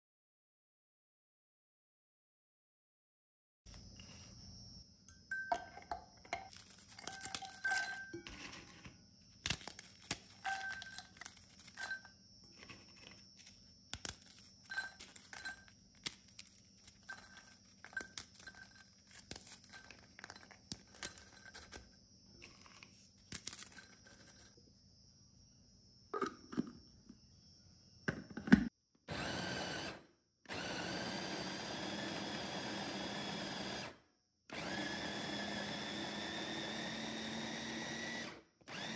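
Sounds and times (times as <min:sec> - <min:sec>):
wrapper crinkling and clicks: 0:06.5 - 0:08.2, 0:09.4 - 0:12.0, 0:13.4 - 0:22.6, 0:23.2 - 0:24.5
electric blender grinding: 0:10.4 - 0:11.1, 0:29.1 - 0:38.9.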